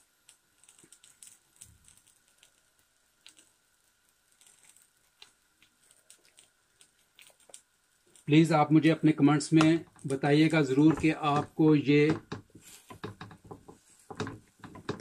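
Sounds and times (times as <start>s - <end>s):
flatbread crackling in a pan: 0.0s - 15.0s.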